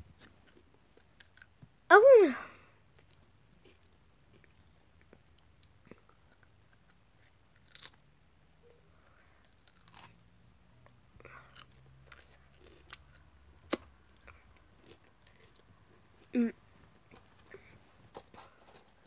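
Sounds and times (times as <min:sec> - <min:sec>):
crisps crunching between teeth: 0:00.2 - 0:01.6, 0:03.0 - 0:08.1, 0:09.1 - 0:10.2, 0:11.3 - 0:16.4
chewing crisps: 0:03.0 - 0:08.1, 0:09.0 - 0:10.2, 0:11.1 - 0:16.4.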